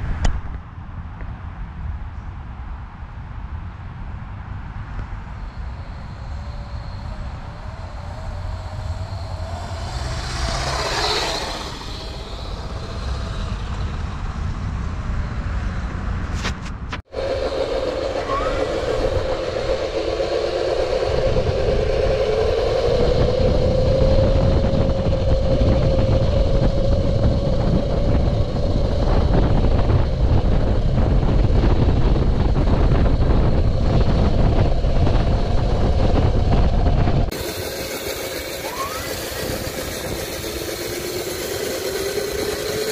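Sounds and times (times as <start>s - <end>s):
wind rumble on microphone: 0.0s - 42.9s
electric motor whine: 5.3s - 14.4s, 17.1s - 42.9s.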